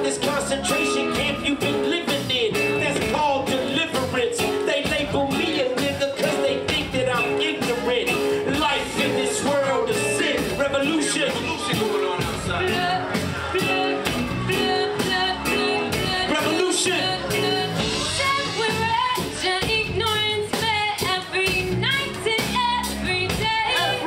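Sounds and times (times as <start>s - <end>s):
guitar: 0.0s - 24.0s
steady drum beat: 0.0s - 24.0s
woman singing: 11.8s - 24.0s.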